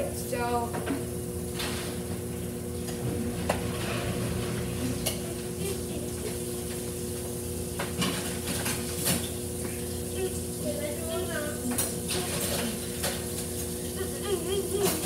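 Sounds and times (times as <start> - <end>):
steady hum: 0.0 - 15.0
dishes clattering in a sink: 0.7 - 2.2, 2.8 - 6.9, 7.7 - 9.9, 11.5 - 15.0.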